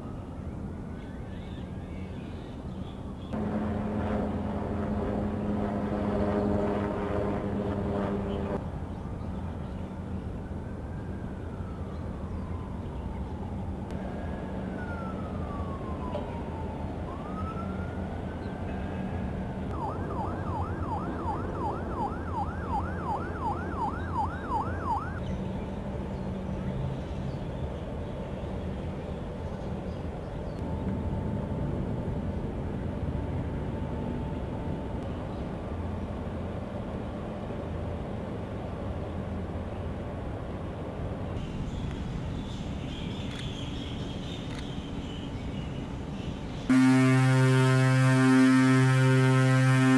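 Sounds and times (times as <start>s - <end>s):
low steady rumble: 3.4s - 8.8s
electronic siren wailing and yelping: 19.7s - 25.2s.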